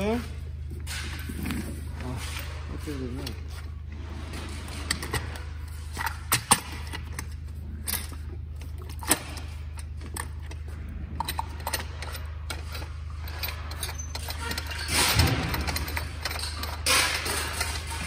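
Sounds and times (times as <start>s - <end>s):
steady low hum: 0.0s - 18.0s
metal clicks and clanks: 0.8s - 18.0s.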